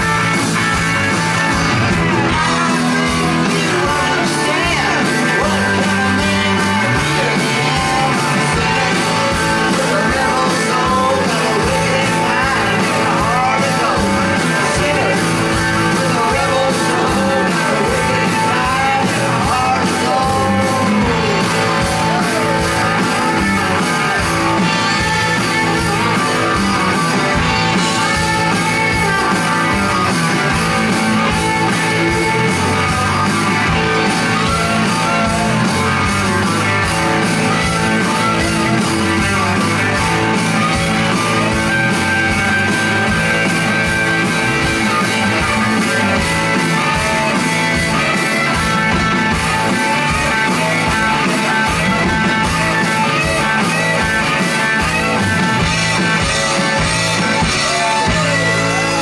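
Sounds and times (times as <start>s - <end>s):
rock band playing: 0.0s - 59.0s
lead vocal singing: 2.2s - 26.4s, 27.4s - 41.5s, 55.7s - 59.0s.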